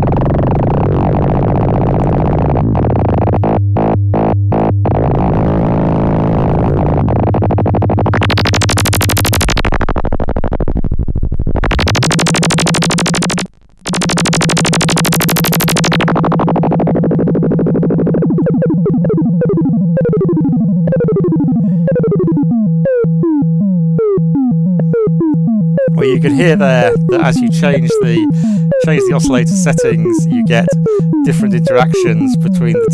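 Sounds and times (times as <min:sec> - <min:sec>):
harsh high synth buzz: 0:11.8 - 0:32.9
synthesizer filter sweeps: 0:11.8 - 0:32.9
steady low synth tone: 0:12.0 - 0:32.9.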